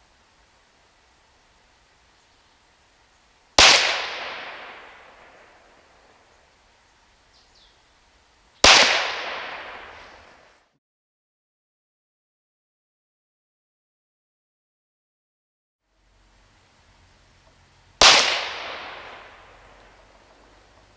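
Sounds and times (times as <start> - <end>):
air pistol shots with echo: 3.6 - 5.4, 8.6 - 10.4, 18.0 - 19.6.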